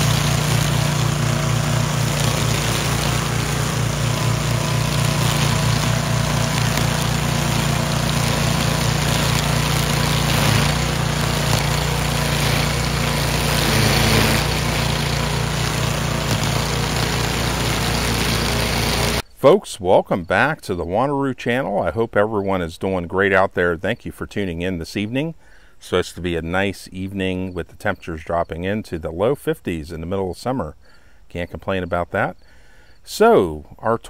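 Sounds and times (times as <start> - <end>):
string trimmer engine running: 0.0 - 19.2
trimmer line cutting tall grass: 0.0 - 19.2.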